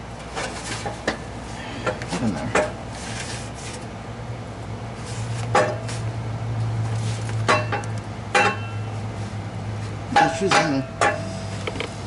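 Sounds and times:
steady low hum: 0.0s - 12.0s
exhaust pipe metallic knocks: 7.4s - 9.0s, 10.1s - 11.9s.

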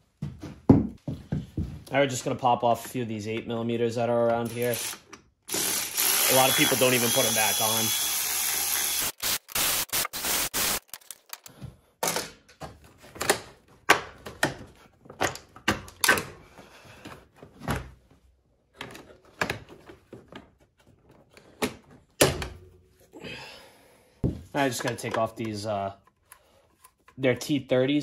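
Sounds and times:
electric ratchet spinning: 4.5s - 11.2s.

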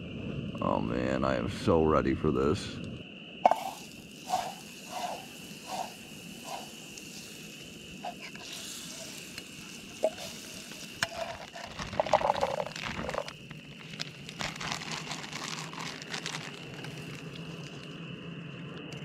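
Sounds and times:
campfire crackling: 3.4s - 19.0s.

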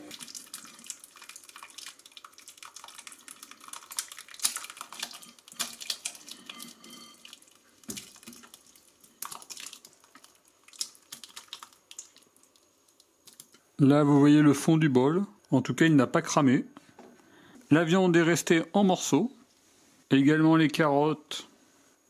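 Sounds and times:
stew sloshing and plopping: 0.0s - 13.5s.

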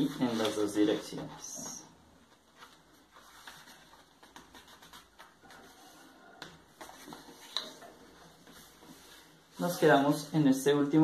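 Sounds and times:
paper rustling as folded: 0.0s - 1.6s, 2.2s - 6.1s.

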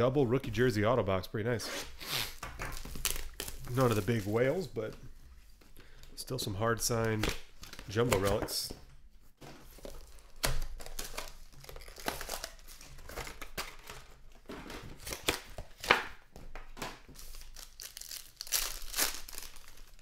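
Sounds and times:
wrappers crinkling and tearing: 2.7s - 4.6s, 10.0s - 14.0s, 17.2s - 20.0s.

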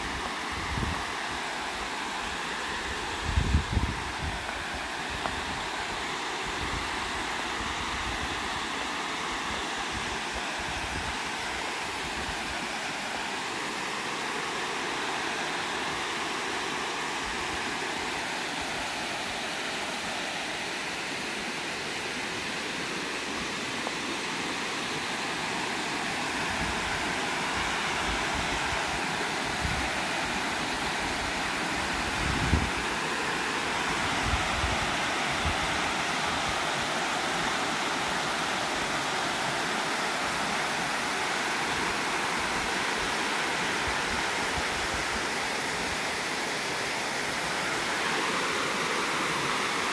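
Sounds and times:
water rushing over spillway: 0.0s - 49.9s.

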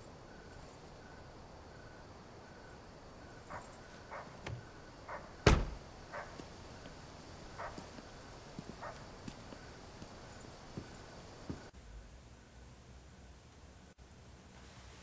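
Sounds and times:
car door slamming: 5.4s - 5.8s
soft knocks and footsteps: 7.6s - 11.7s.

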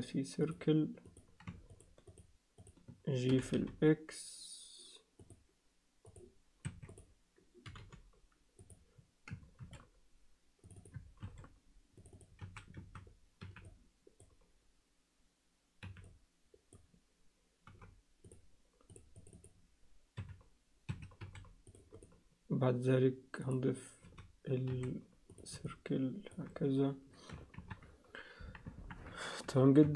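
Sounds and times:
keyboard keys clicking: 27.3s - 27.9s.

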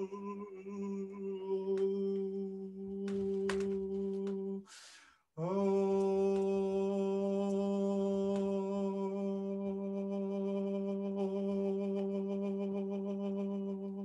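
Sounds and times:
man humming low note: 0.0s - 4.6s, 5.4s - 14.0s
quick in-breath: 4.6s - 5.3s.

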